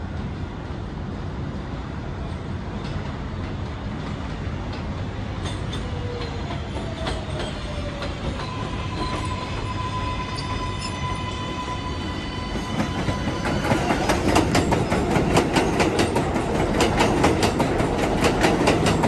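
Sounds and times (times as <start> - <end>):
thin squealing tones: 5.5 - 15.1.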